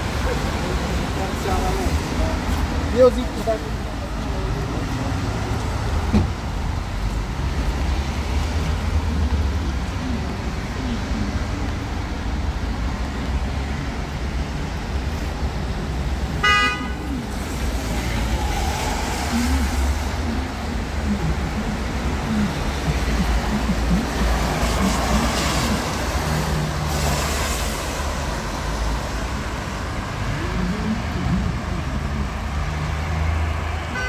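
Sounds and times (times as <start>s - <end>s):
street traffic rumble: 0.0s - 34.0s
vehicle horn toot: 16.4s - 17.0s.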